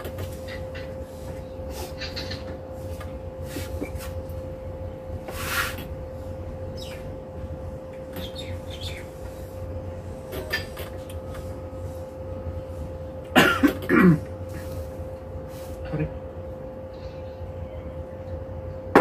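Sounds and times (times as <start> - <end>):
steady hum and low rumble: 0.0 - 19.0
person coughing: 13.3 - 14.3.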